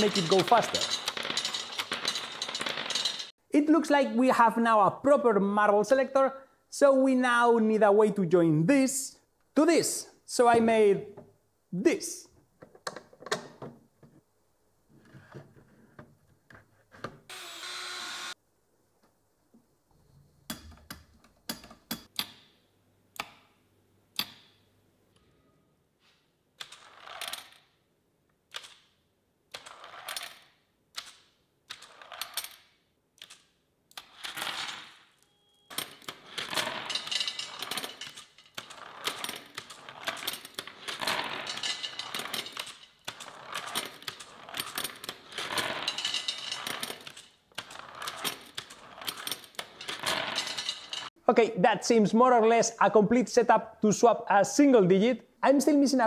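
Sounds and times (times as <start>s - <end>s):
steel marbles clattering on ramps: 0.0s - 3.3s, 34.0s - 51.2s.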